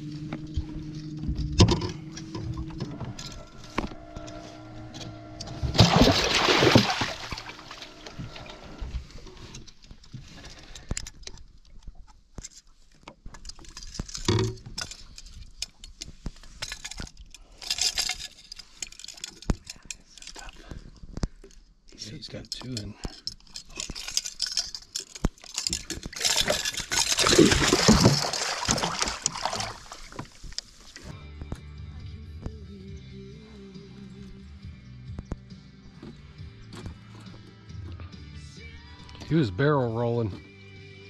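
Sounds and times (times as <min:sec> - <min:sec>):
low steady hum: 0:00.0 - 0:09.8
water splashing: 0:05.5 - 0:08.8, 0:25.8 - 0:31.0.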